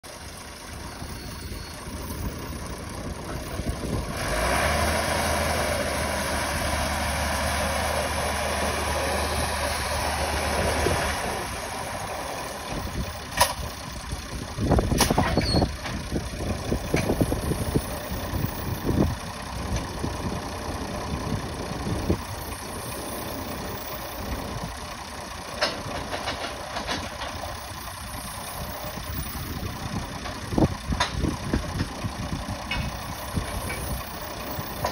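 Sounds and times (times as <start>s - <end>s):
drilling rig engine running: 0.0s - 34.9s.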